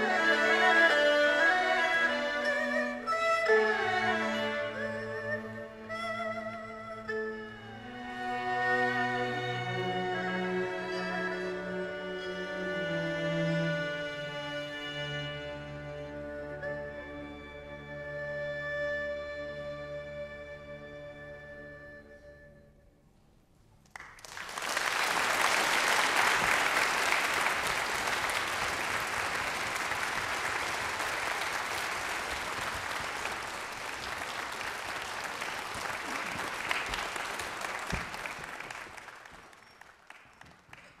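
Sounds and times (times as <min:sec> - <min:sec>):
audience applauding: 0:23.9 - 0:41.0.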